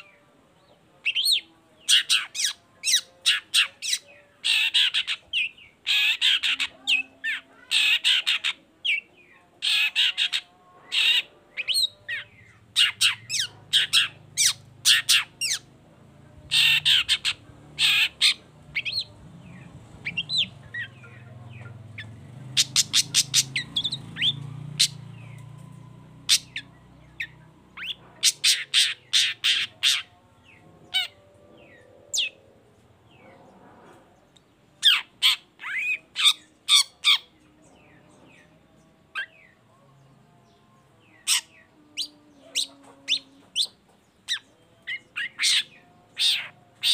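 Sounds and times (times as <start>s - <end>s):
bird harsh rasping squawks: 5.8s - 8.6s, 16.5s - 19.0s, 22.6s - 25.0s, 27.8s - 30.1s.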